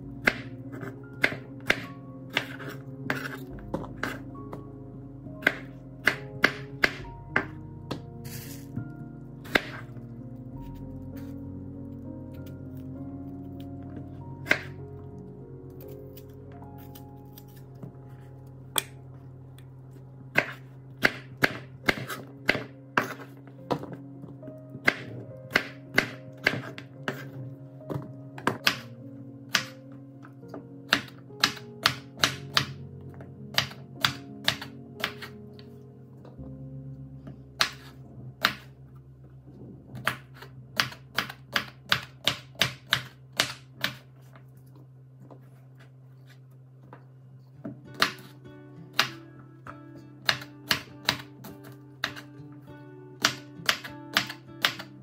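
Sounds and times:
knife chopping on wooden board: 0.2 - 4.2, 5.4 - 8.6, 9.4 - 9.8, 20.3 - 24.0, 24.8 - 28.9, 37.6 - 38.7.

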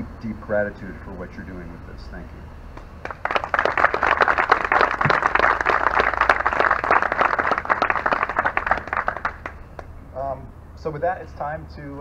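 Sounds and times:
audience clapping: 3.0 - 9.9.

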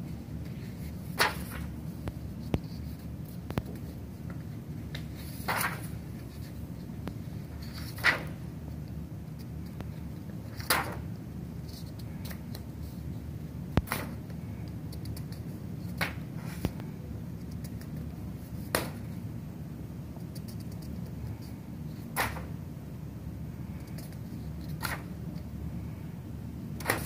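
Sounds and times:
steady low hum: 0.0 - 27.0
paper rustling: 0.4 - 8.4, 23.8 - 25.5.

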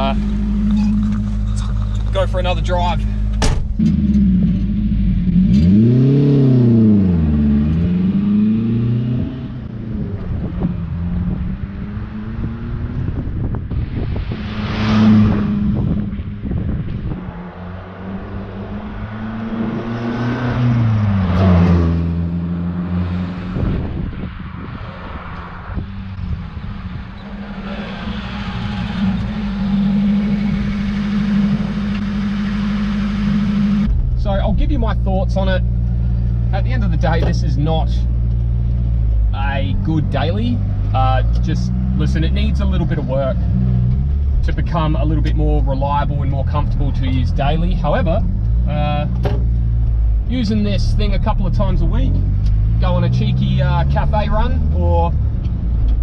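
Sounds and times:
car engine accelerating away: 3.8 - 24.2, 25.4 - 56.0.

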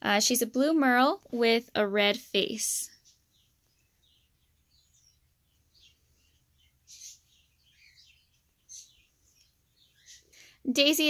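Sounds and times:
puppies squeaking: 6.8 - 7.9.

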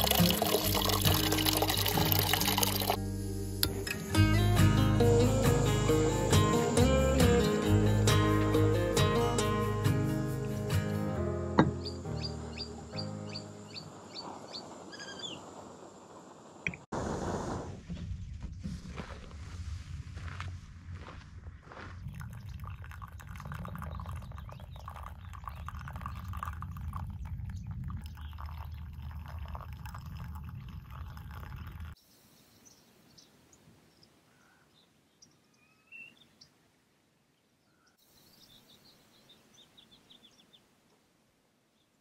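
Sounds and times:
water pouring into a mug: 0.0 - 3.0, 22.1 - 32.0
faint bird chirps: 11.8 - 15.5, 32.0 - 36.6, 37.4 - 40.7.

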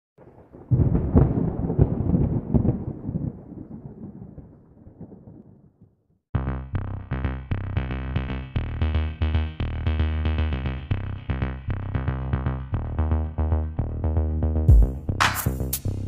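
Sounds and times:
electronic music with drum beat: 11.6 - 16.0
deep rumbling drum hits: 14.7 - 15.1.

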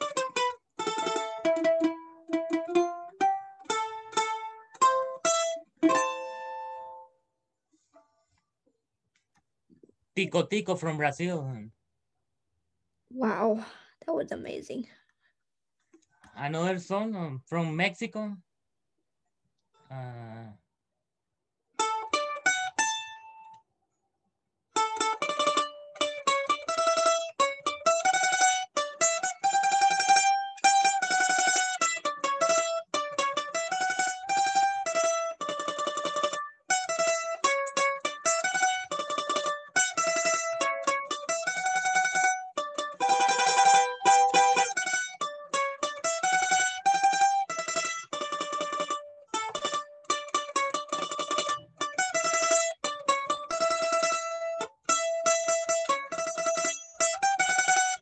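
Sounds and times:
mandolin playing fast melody: 0.0 - 7.1, 10.2 - 11.5, 21.8 - 23.4, 24.8 - 58.0.

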